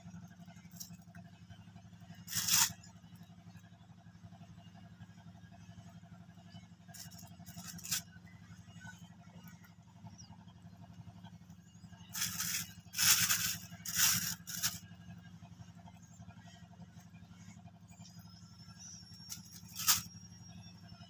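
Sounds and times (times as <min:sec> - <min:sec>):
steady low hum: 0:00.0 - 0:21.0
plastic bag crinkling and rustling: 0:12.2 - 0:14.8.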